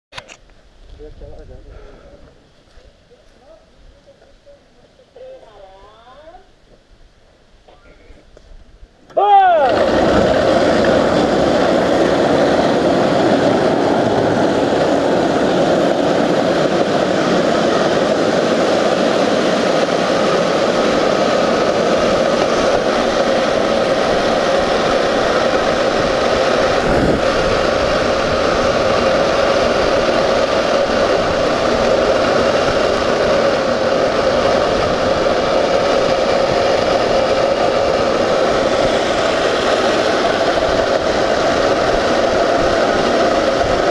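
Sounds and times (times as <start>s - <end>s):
cart wheels rolling on asphalt: 9.3s - 43.9s.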